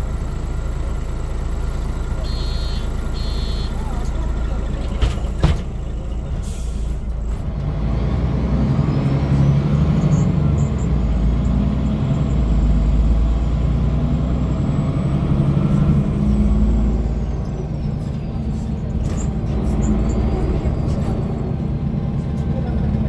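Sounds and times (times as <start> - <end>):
bus diesel engine: 0.0 - 23.0
thump: 5.0 - 5.7.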